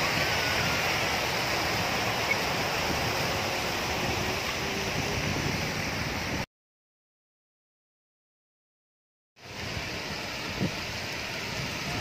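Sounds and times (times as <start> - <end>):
fountain water splashing: 0.0 - 6.4, 9.4 - 12.0.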